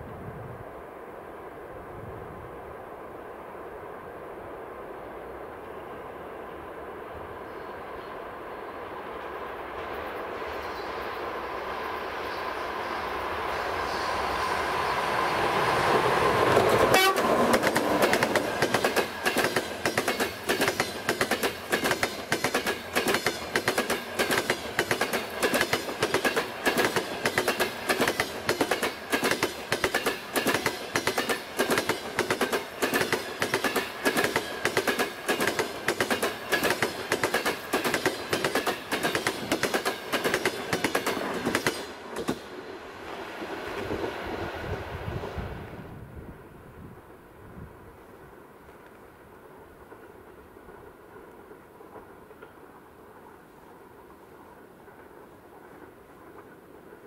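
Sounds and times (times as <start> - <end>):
train rumble: 0.0 - 57.0
train wheels clattering over rail joints: 16.4 - 42.6.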